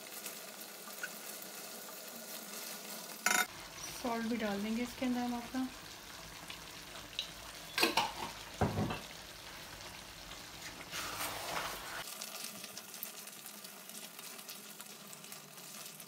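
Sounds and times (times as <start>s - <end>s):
food sizzling in oil: 0.0s - 16.0s
knocks on pan: 7.8s - 9.1s
wooden spatula stirring: 10.6s - 12.0s.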